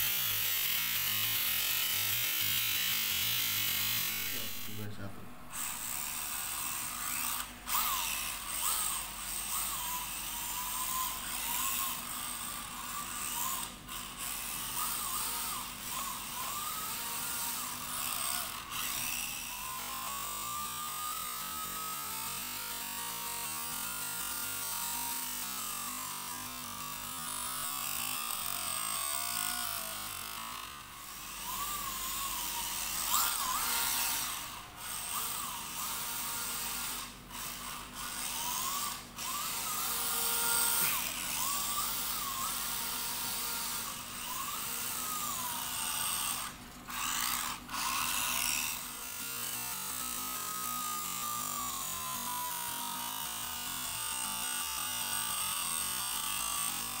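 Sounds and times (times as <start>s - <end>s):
toy car electric motors whining: 0.0s - 4.9s, 5.5s - 57.0s.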